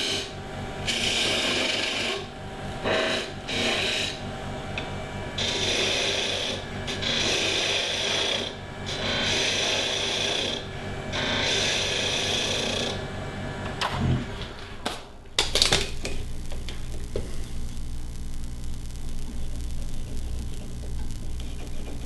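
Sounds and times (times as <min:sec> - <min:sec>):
lathe tool cutting wood: 0:00.0 - 0:04.2, 0:05.4 - 0:13.1
lathe humming: 0:00.0 - 0:22.0.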